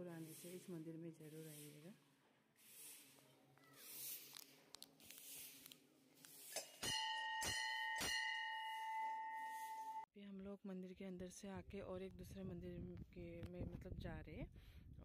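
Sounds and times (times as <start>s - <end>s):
temple bell ringing: 6.8s - 10.0s.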